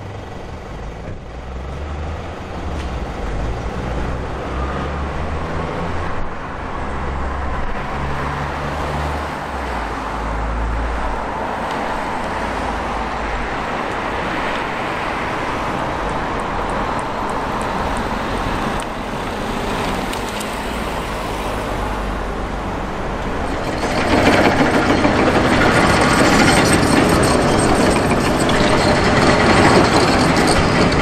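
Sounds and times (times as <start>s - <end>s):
construction machinery engines: 0.0s - 31.0s
scattered knocks: 23.2s - 31.0s.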